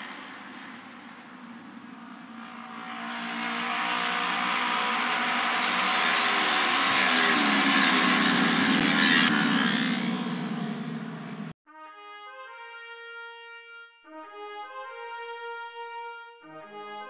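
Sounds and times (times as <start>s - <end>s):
racing motorcycles passing by: 0.0s - 11.6s.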